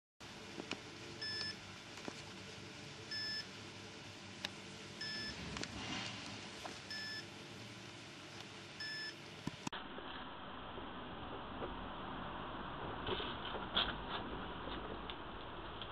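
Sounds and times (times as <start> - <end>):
electronic beeper beeping: 5.0 - 5.4, 6.9 - 7.2.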